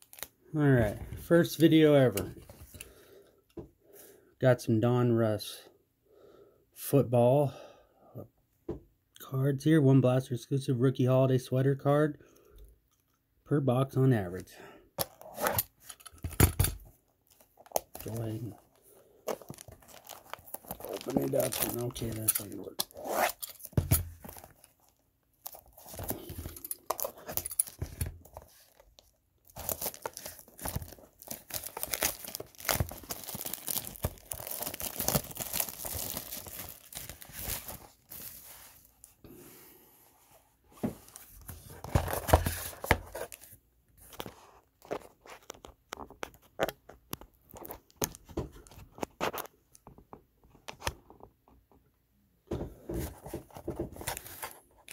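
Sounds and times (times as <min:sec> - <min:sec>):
plastic shrink wrap tearing: 0:19.3 - 0:23.7, 0:29.5 - 0:38.4.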